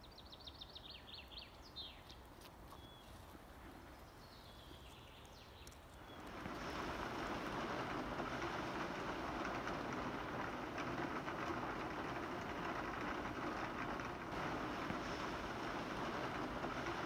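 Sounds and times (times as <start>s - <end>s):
raindrops ticking on window: 6.1s - 17.0s
heavy rain falling: 6.2s - 17.0s.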